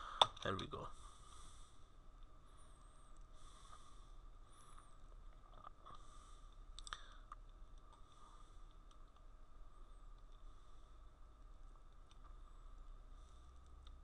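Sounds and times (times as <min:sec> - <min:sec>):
faint clicks: 0:04.7 - 0:09.4, 0:11.6 - 0:12.4, 0:13.5 - 0:14.0.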